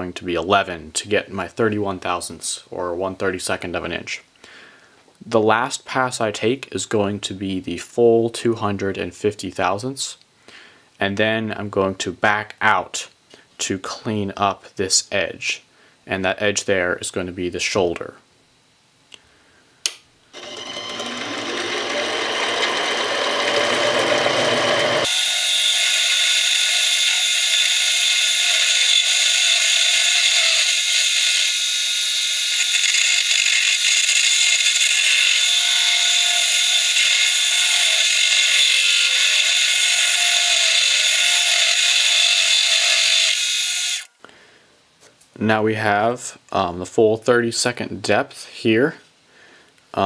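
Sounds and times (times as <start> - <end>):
lathe high-pitched whir: 20.4 - 44.1
lathe motor whining: 20.4 - 44.1.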